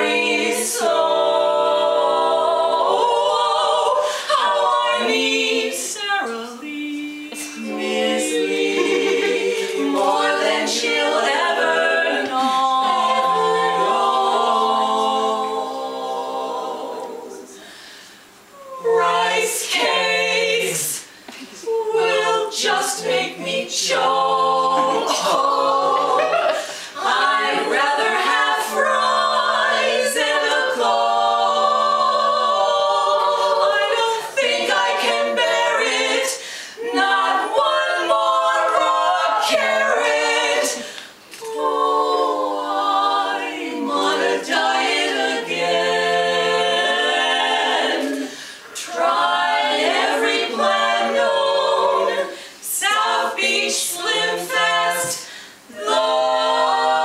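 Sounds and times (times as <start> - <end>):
women singing a cappella harmony: 0.0 - 57.0
singers breathing: 4.0 - 4.3, 17.6 - 18.4, 26.6 - 27.0, 36.4 - 36.8, 40.8 - 41.3, 48.2 - 48.8, 52.3 - 52.6, 55.2 - 55.7.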